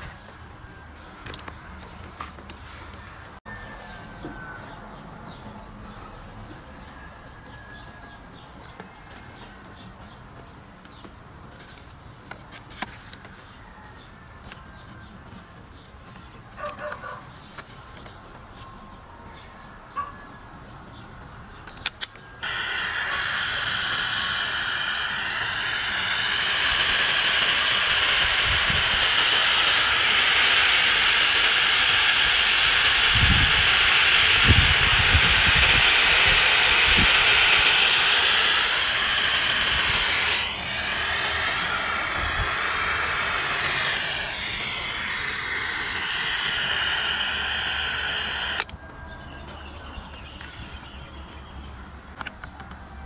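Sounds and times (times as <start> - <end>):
radio static hiss: 22.4 - 48.7.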